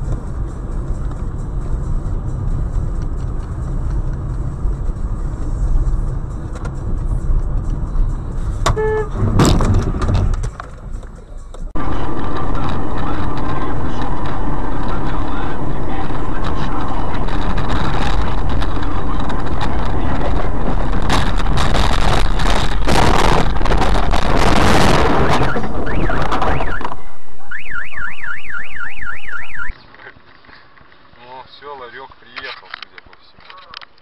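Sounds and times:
car alarm warbling: 8.7s - 9.2s, 25.2s - 29.7s.

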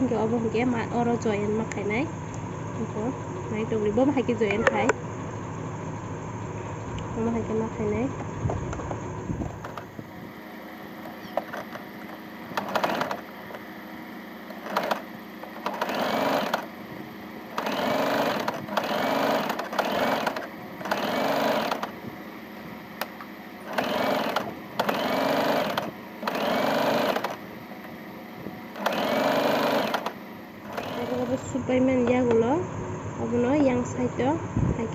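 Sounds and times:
sewing machine stitching: 11.0s - 13.6s, 14.4s - 16.8s, 17.5s - 22.0s, 23.0s - 27.5s, 28.7s - 31.5s.

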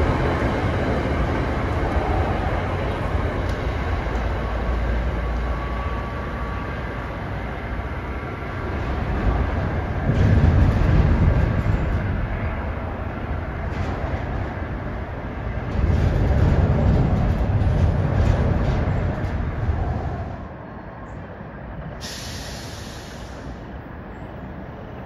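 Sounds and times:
passing train rumbling: 0.0s - 25.0s
short hiss: 22.0s - 23.6s.

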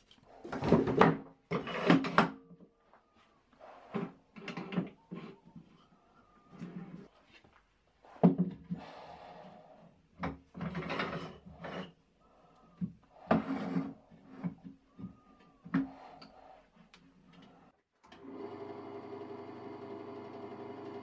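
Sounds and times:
metal scraping and sliding: 0.1s - 2.3s, 10.6s - 12.0s, 13.1s - 14.6s.

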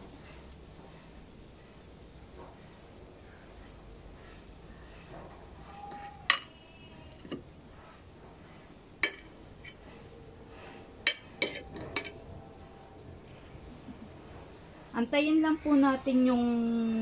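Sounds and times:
metal utensil clinking on kitchenware: 11.0s - 12.2s.

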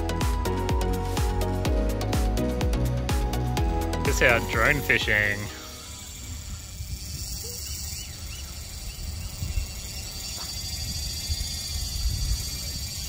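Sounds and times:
drone buzzing: 0.0s - 13.0s
wind rumble on microphone: 6.0s - 13.0s.

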